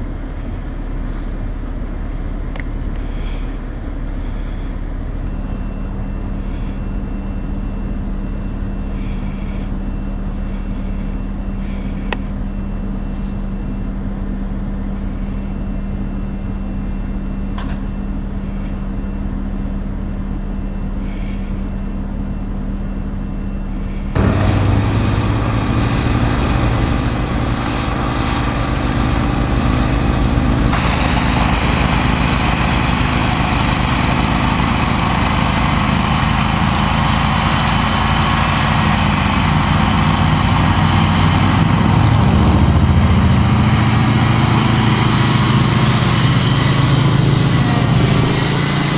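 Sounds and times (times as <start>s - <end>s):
small engine running hard: 0.0s - 13.3s, 21.0s - 21.7s, 23.8s - 48.9s
steady low hum: 0.0s - 48.9s
snowblower throwing snow: 24.2s - 48.9s.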